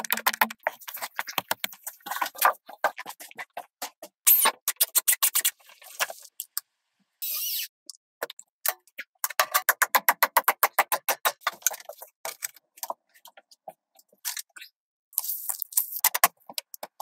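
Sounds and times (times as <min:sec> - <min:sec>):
taps and knocks on wooden boards: 0:09.2 - 0:11.8.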